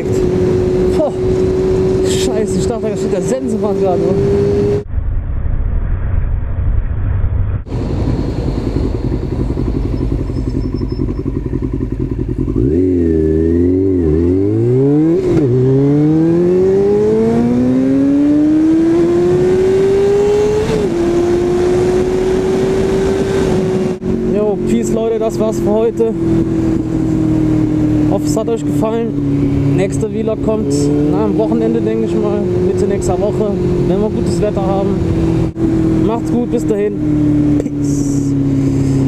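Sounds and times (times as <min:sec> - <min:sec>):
wind rush: 0:00.0 - 0:10.7, 0:18.6 - 0:24.7
motorcycle engine: 0:00.0 - 0:39.0.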